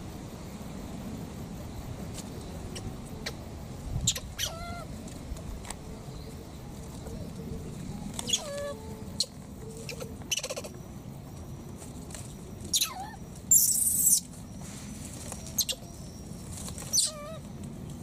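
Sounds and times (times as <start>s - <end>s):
baby monkey squeaking: 4.0s - 4.9s, 8.2s - 10.7s, 12.7s - 14.3s, 15.6s - 15.8s, 16.8s - 17.4s.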